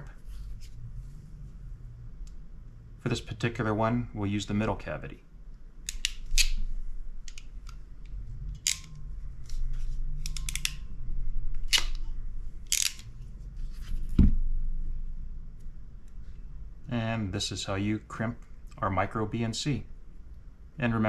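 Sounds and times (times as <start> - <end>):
hand crimp tool clicking: 5.8 - 6.6, 7.2 - 9.1, 10.2 - 10.8.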